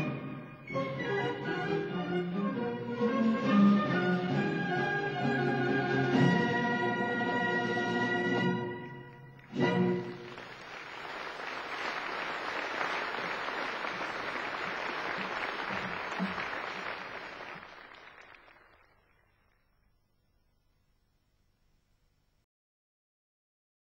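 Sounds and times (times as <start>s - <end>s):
audience applause: 9.3s - 19.8s.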